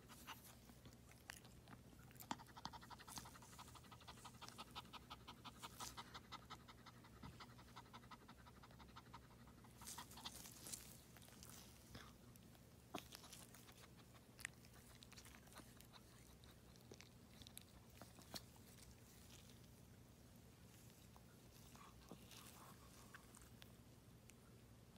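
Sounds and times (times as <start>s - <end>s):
dog panting fast: 2.2s - 10.4s.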